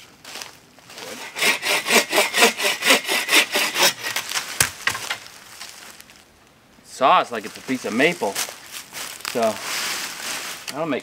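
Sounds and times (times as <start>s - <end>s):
hand saw cutting a branch: 1.0s - 5.1s
sharp knocks: 3.3s - 5.2s.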